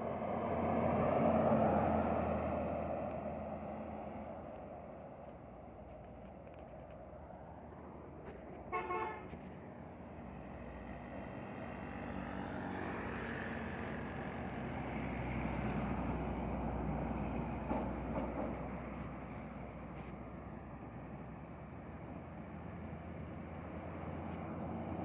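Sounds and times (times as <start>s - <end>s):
heavy truck passing: 0.0s - 25.0s
short horn toot: 8.7s - 9.4s.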